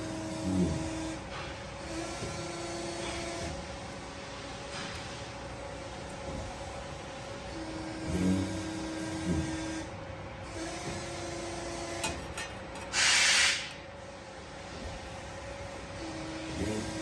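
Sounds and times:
machine hum: 0.0s - 17.0s
loud hiss: 12.9s - 13.7s.

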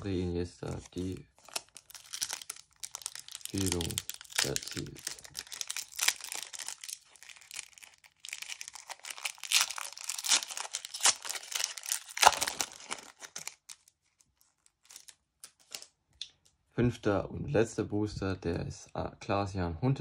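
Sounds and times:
foil wrapper tearing and crinkling: 0.7s - 15.9s.

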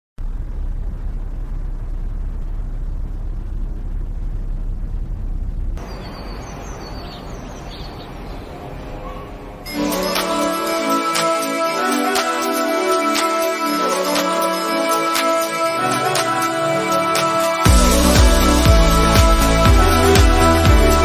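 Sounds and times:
low rumbling noise: 0.2s - 10.7s, 15.6s - 21.0s
music: 9.7s - 21.0s.

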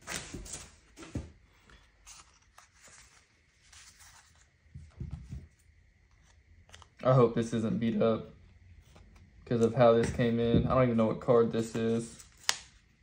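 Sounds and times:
paper index cards rustling: 1.6s - 8.0s, 8.8s - 10.4s, 11.3s - 13.0s.

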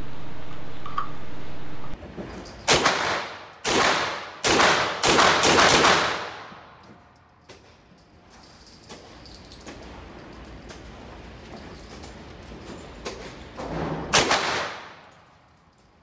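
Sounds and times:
distant gunshots: 2.7s - 6.5s
pistol shots with reverberant tail: 2.7s - 6.6s, 14.1s - 15.0s.

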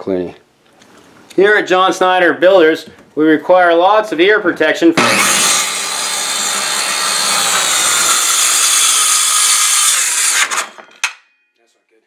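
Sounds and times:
circular saw cutting wood: 5.0s - 10.8s.

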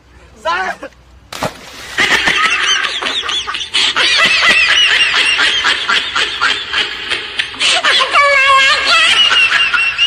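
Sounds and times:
splash into muddy water: 1.3s - 2.2s
high-pitched cackling laughter: 2.0s - 10.0s.

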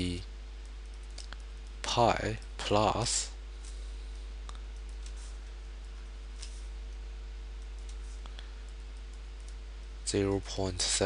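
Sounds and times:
low electrical hum: 0.0s - 11.0s
faint clicks: 0.6s - 1.8s, 7.6s - 9.9s.

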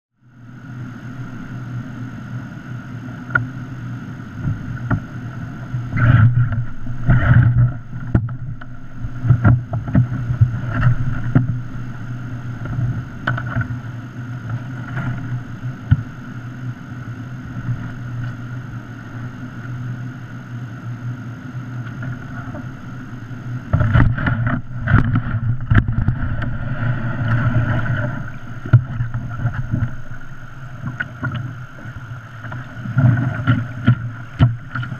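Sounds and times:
kayak and paddle knocking: 4.4s - 16.4s, 21.9s - 34.9s.

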